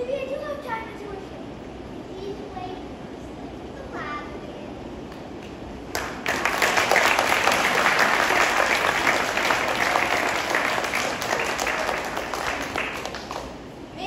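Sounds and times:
audience applauding: 5.9 - 13.7.

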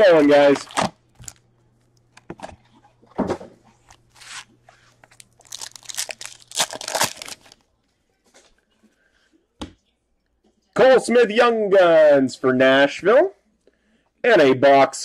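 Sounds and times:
foil wrapper tearing and crinkling: 5.1 - 7.6.

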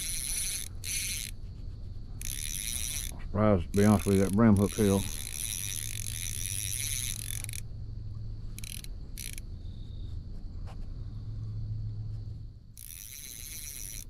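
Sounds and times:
fishing reel clicking and whirring: 0.0 - 7.7, 8.5 - 9.5, 12.8 - 14.0.

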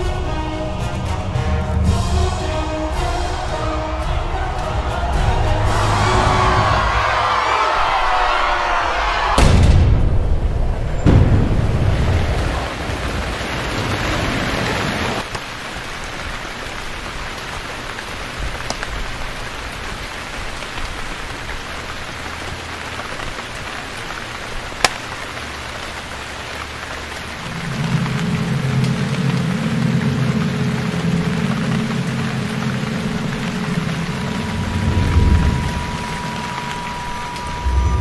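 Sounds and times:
steady rain hiss: 0.0 - 9.1, 10.2 - 38.0
low drone: 27.3 - 38.0
low rumble: 27.4 - 38.0.

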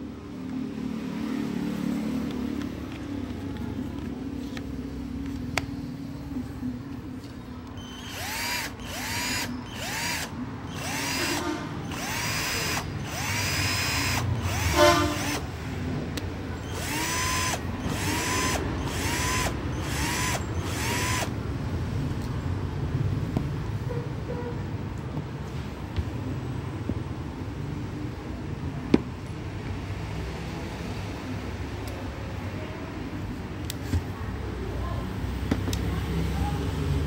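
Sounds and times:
cordless drill motor whining: 7.8 - 15.4, 16.6 - 21.3.

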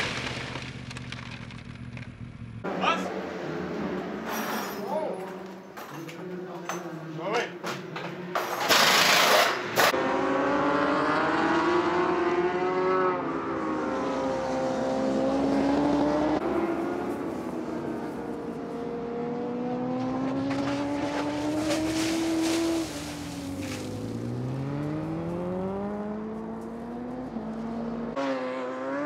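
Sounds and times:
superbike engine at high revs: 8.7 - 17.8, 18.8 - 29.0.

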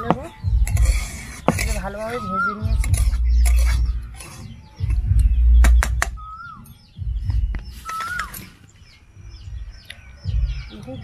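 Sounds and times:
small birds chirping: 0.0 - 11.0
low rumbles on microphone: 0.1 - 8.4
whistled bird calls falling in pitch: 1.8 - 10.9.

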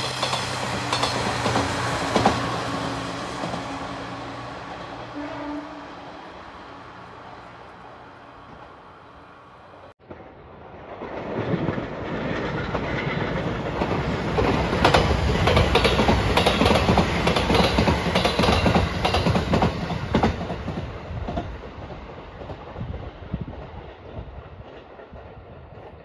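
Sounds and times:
electric train passing: 0.0 - 26.0
wheels clacking over rail joints: 11.0 - 21.6.

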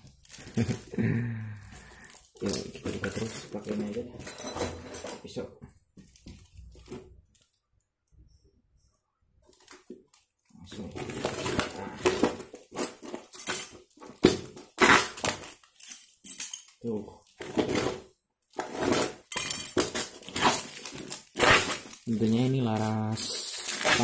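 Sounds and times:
parcel packaging rustling and tearing: 0.0 - 1.0, 1.6 - 4.2, 9.5 - 24.0.

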